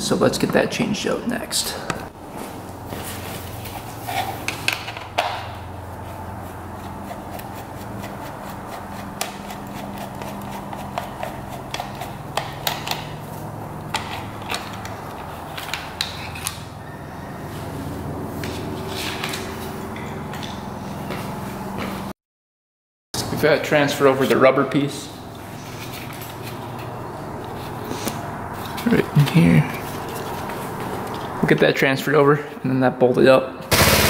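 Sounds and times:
steady low hum: 24.8s - 31.6s.

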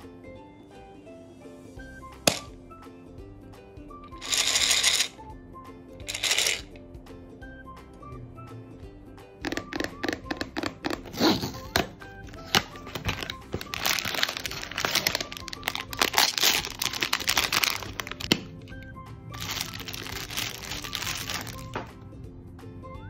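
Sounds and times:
background music: 0.0s - 23.0s
cardboard packaging clicks: 10.4s - 18.6s, 19.4s - 21.9s
plastic bag rustling: 12.3s - 21.9s
foil bag crinkling and tearing: 12.4s - 18.5s, 19.3s - 21.8s.

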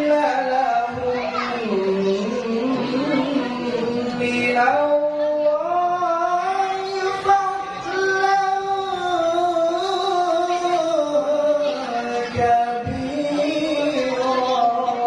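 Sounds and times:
man reciting melodically: 0.0s - 15.0s
low microphone thumps: 12.3s - 13.8s.

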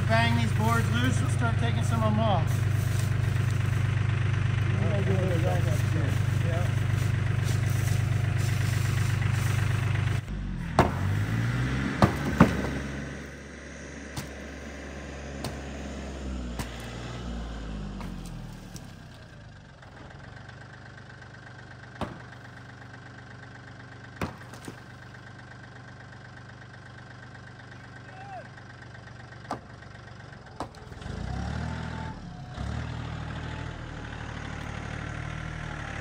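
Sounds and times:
engine idling: 0.0s - 36.0s
hammer banging boards: 10.7s - 11.2s, 12.0s - 13.0s, 22.0s - 22.4s.

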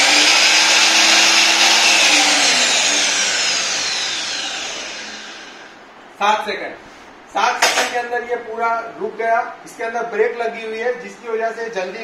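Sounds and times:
miter saw motor whine: 0.0s - 5.8s
saw blade spinning down: 0.0s - 5.8s.

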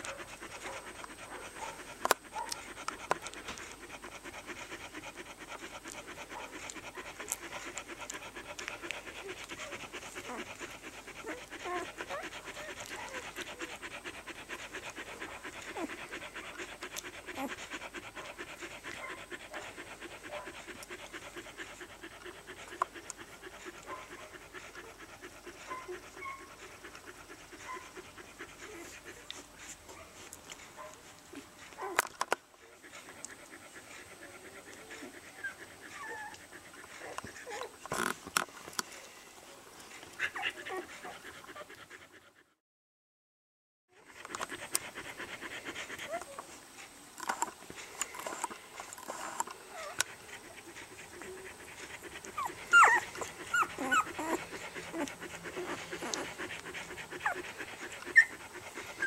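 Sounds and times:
dog panting rapidly: 0.0s - 42.6s, 43.9s - 59.0s
puppies squeaking: 52.4s - 56.2s.

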